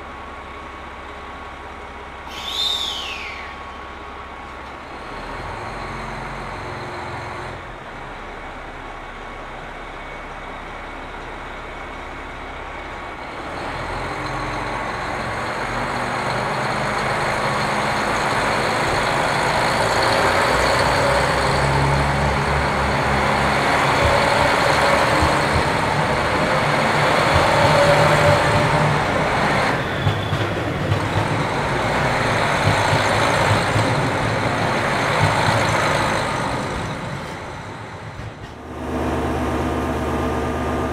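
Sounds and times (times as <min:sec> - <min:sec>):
diesel train engine running: 0:00.0 - 0:40.9
sharp train clacks: 0:13.6 - 0:39.0.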